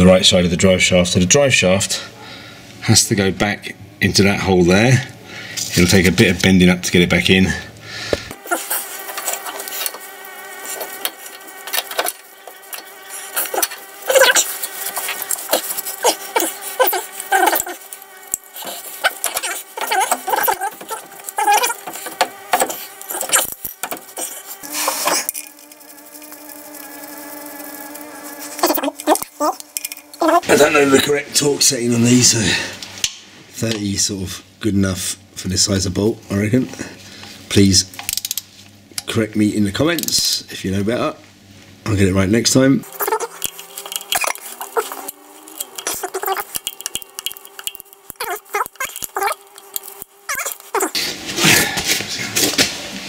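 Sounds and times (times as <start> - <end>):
steady buzzing hum: 0.0 - 53.0
metal parts clicking and scraping: 10.7 - 27.3, 28.5 - 30.8, 42.9 - 51.0
short squeaks: 50.3 - 51.0.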